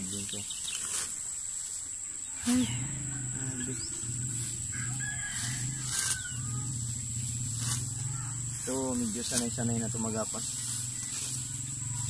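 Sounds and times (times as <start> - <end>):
rooster crowing: 2.3 - 7.3
high-pitched whine: 2.4 - 12.0.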